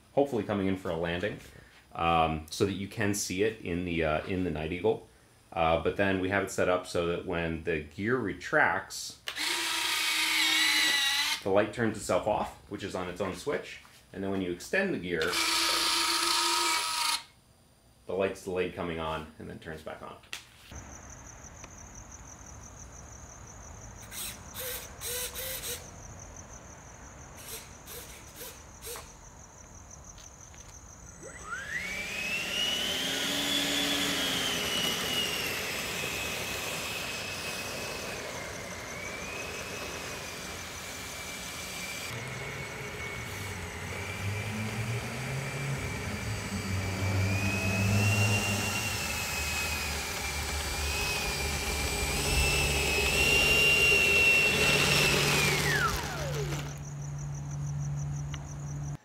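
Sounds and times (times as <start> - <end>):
electric ducted fan whine: 30.5 - 58.0.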